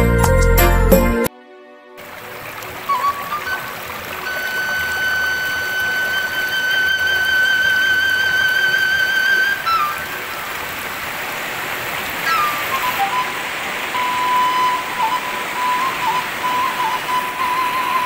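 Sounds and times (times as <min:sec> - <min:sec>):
background music melody: 0:00.0 - 0:11.0, 0:11.8 - 0:18.0
river water flowing: 0:02.0 - 0:18.0.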